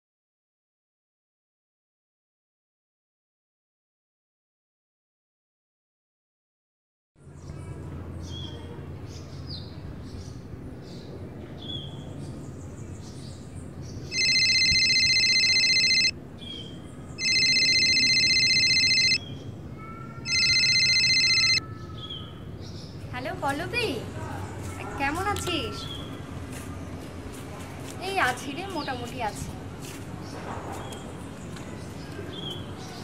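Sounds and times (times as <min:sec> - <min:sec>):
birds chirping: 0:07.4 - 0:27.0, 0:28.0 - 0:33.0
mobile phone electronic ringtone: 0:14.1 - 0:16.2, 0:17.2 - 0:19.2, 0:20.3 - 0:21.6.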